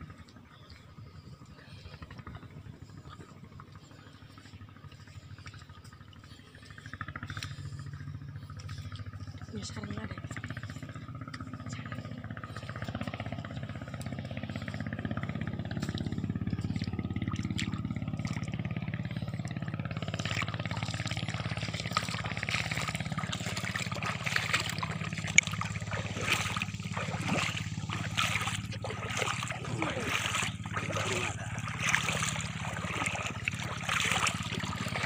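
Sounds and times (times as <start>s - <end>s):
low engine-like drone: 0.0s - 35.0s
footsteps wading through seawater: 12.8s - 35.0s.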